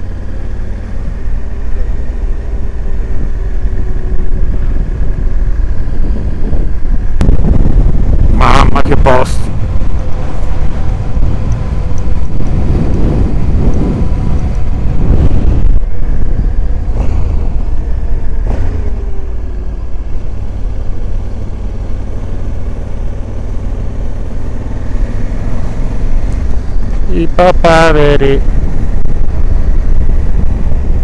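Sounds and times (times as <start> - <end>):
motorcycle engine running: 0.0 - 31.0
wind rushing over microphone: 0.0 - 31.0.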